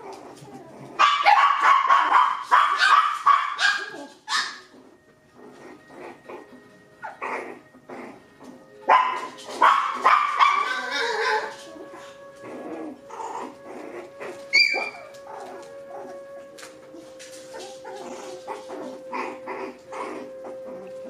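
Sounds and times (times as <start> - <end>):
puppies yipping and barking: 0.0 - 21.0
puppy squealing: 9.7 - 16.1, 17.5 - 21.0.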